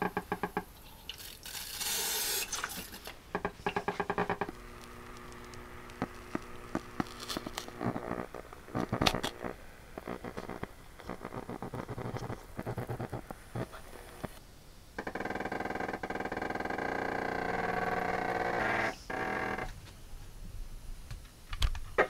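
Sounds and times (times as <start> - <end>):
spray bottle hissing: 1.2 - 3.1
wet speaker crackling and squishing: 2.4 - 14.3.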